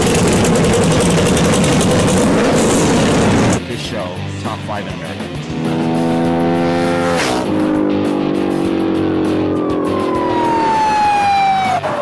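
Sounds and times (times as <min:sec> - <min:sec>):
car engine revving: 0:00.0 - 0:03.6, 0:05.2 - 0:12.0
background music: 0:03.6 - 0:12.0.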